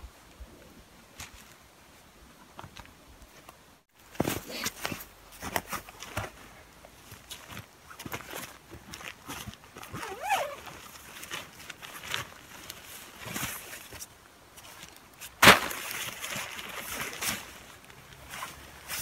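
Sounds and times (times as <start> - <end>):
hands rustling a nylon sack: 4.0 - 19.0.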